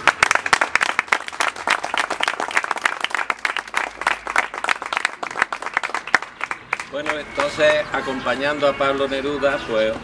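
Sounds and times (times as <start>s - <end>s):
small group applauding: 0.0s - 7.9s.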